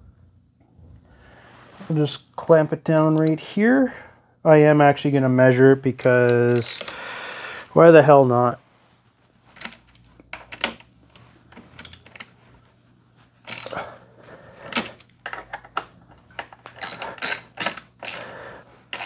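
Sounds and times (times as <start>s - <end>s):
clinks of hand tools and metal: 3.0s - 3.5s, 6.0s - 7.0s, 13.5s - 13.9s, 16.4s - 18.3s.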